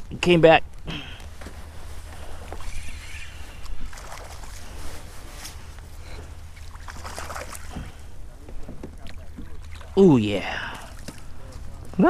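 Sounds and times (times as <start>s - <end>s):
fish thrashing in water: 2.6s - 5.2s, 6.2s - 8.2s, 8.9s - 10.0s.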